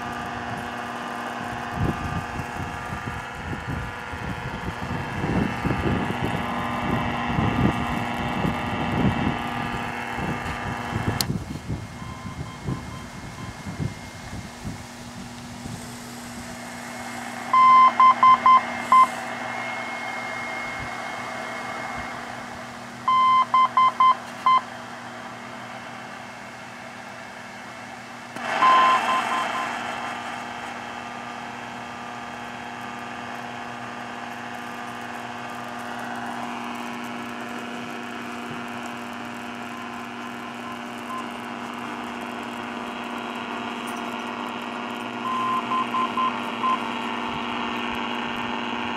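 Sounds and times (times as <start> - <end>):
radio static hiss: 0.0 - 25.7, 28.3 - 48.9
short morse beeps: 12.0 - 14.2, 17.5 - 22.2, 23.1 - 24.7, 28.5 - 29.8, 39.7 - 41.4, 45.2 - 46.9.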